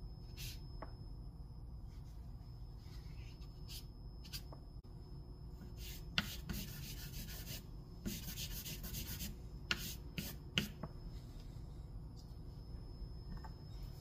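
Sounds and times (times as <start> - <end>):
charcoal scratching on paper: 5.8 - 10.7.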